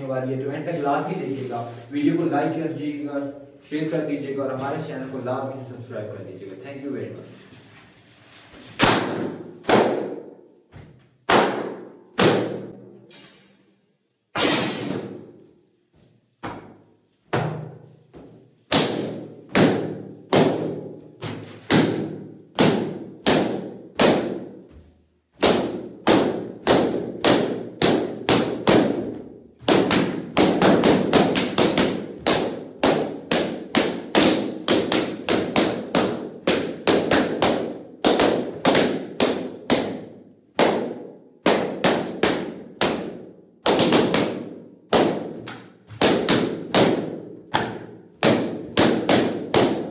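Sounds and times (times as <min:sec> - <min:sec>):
balloons popping: 0:08.8 - 0:12.8, 0:14.3 - 0:15.4, 0:16.4 - 0:24.7, 0:25.3 - 0:49.9.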